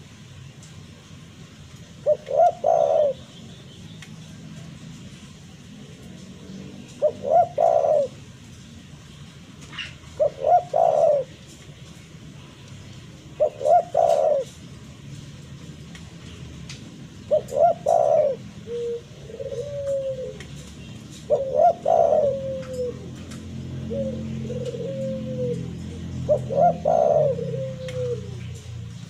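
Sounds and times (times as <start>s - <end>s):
dove cooing: 2.0s - 3.3s, 5.8s - 8.5s, 9.7s - 11.6s, 13.2s - 14.8s, 17.2s - 29.0s.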